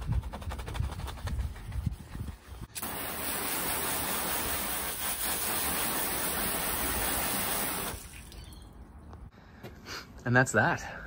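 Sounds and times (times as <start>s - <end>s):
water spray hissing on metal panel: 2.8s - 8.0s.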